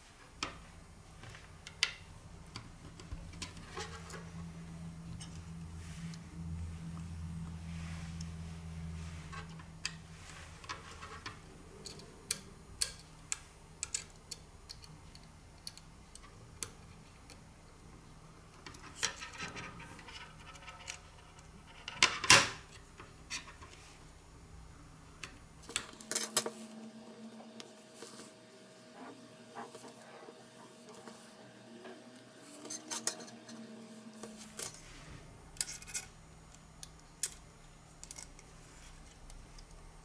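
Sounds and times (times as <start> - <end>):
low background hum: 0.0 - 40.0.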